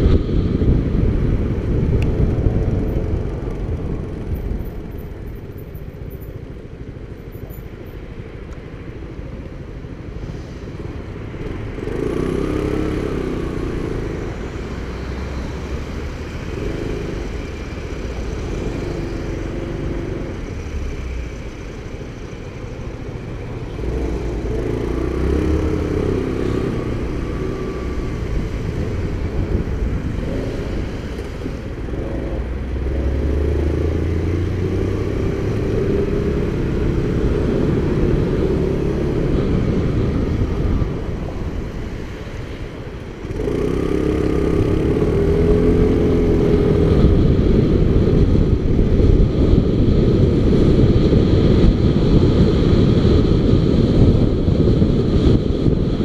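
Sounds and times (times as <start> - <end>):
wind rush over microphone: 0.0 - 7.3, 8.8 - 56.0
motorcycle engine accelerating: 11.3 - 20.6, 23.7 - 56.0.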